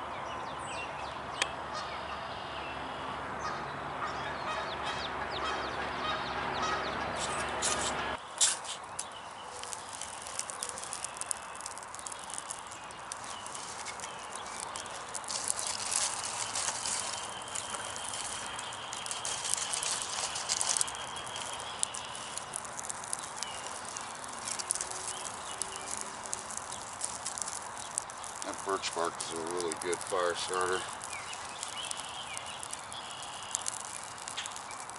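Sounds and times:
bark and sticks rustling: 0:07.2 - 0:34.9
twigs crackling in fire: 0:07.2 - 0:34.9.

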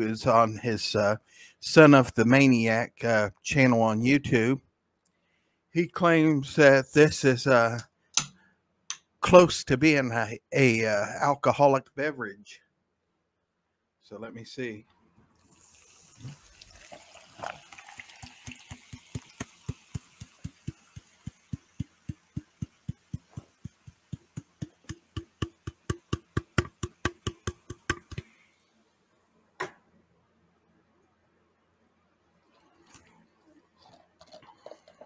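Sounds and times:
soda fizzing and glugging: 0:15.3 - 0:28.6, 0:33.8 - 0:35.0.

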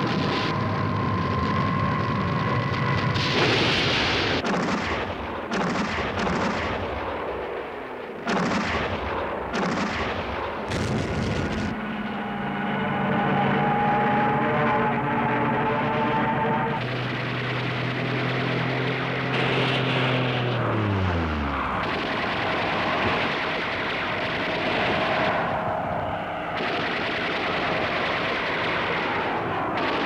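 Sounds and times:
heavy gun blasts: 0:03.2 - 0:11.8, 0:21.6 - 0:30.0.

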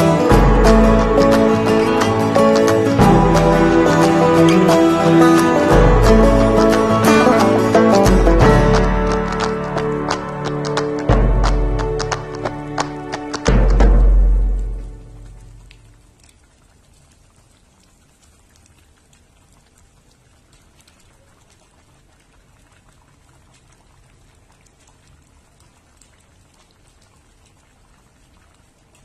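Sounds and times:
music passage: 0:00.0 - 0:15.7
liquid bubbling in a pan: 0:15.7 - 0:29.0.

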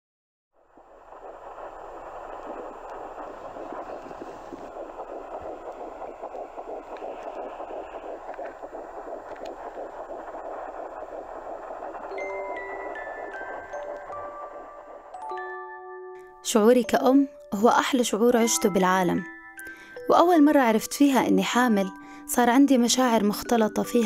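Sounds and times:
doppler heartbeat whooshing: 0:00.8 - 0:15.2.

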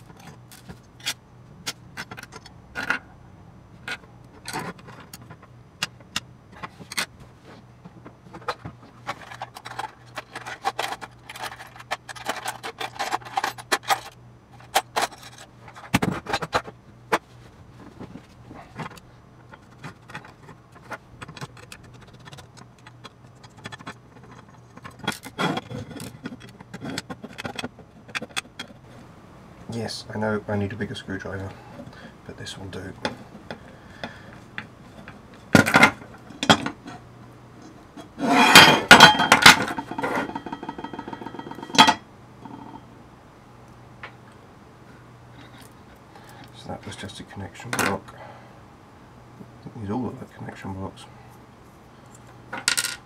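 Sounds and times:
small metal parts clinking on desk: 0:38.2 - 0:42.8, 0:52.1 - 0:53.0.

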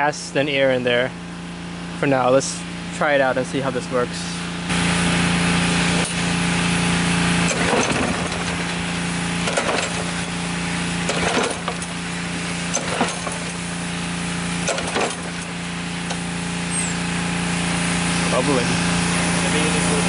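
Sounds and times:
pull-cord starter rasping: 0:04.8 - 0:18.6.

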